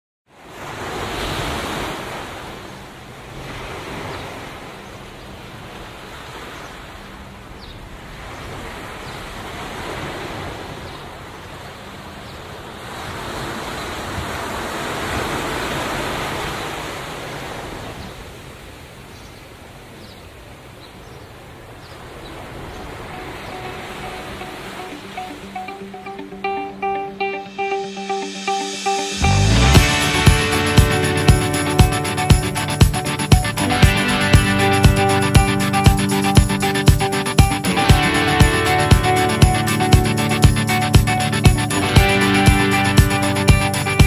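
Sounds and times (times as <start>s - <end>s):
waves breaking on a beach: 0.3s - 26.8s, 28.2s - 44.0s.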